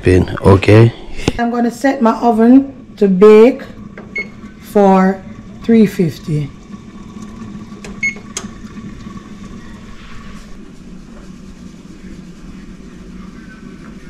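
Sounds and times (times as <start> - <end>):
low oven hum: 0.0 - 14.0
oven keypad beep: 4.1 - 4.4, 8.0 - 8.5.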